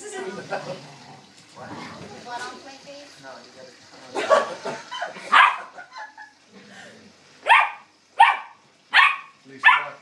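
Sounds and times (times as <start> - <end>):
puppy barking: 5.3 - 5.8, 7.4 - 10.0.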